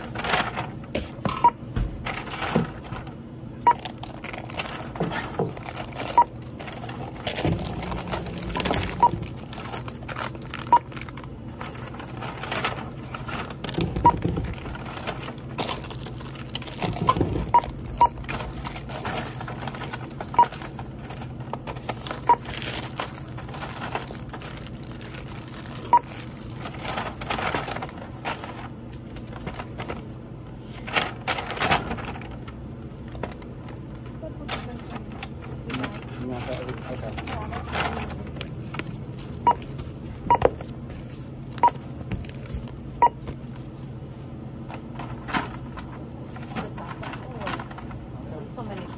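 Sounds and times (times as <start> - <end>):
paper bags rustling: 0.0 - 48.8
barcode scanner beeps: 3.6 - 3.8, 6.1 - 6.3, 43.0 - 43.2.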